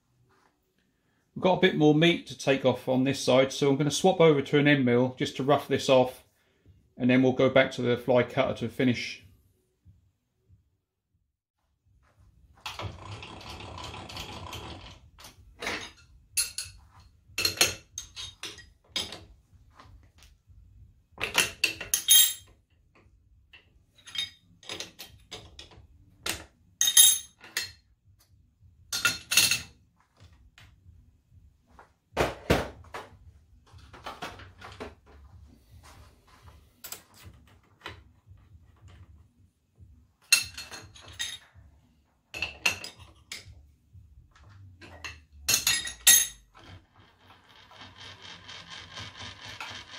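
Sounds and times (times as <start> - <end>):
wrenches clinking on metal: 12.8 - 19.3, 21.2 - 22.6, 23.9 - 27.8, 40.3 - 41.6, 44.8 - 49.9.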